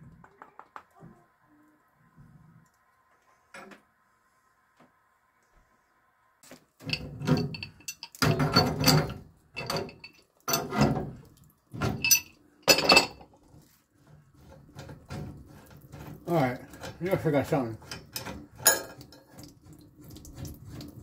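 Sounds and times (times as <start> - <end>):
pipe wrench clanking on metal: 6.8 - 11.2, 11.8 - 13.2, 15.9 - 19.2.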